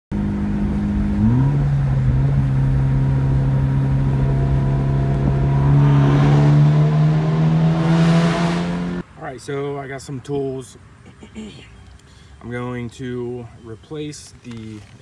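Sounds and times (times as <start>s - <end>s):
car engine exhaust note: 0.1s - 9.0s.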